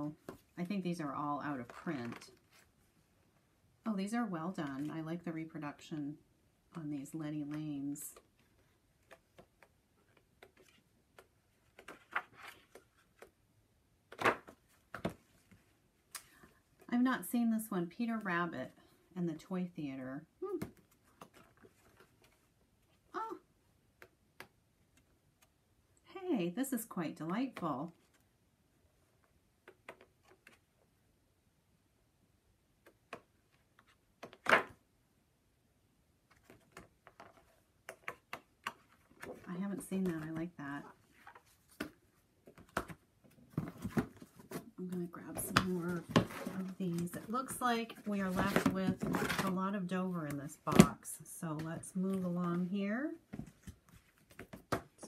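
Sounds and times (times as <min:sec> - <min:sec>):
paper pages rustling: 0:08.4 - 0:13.4, 0:36.3 - 0:49.6.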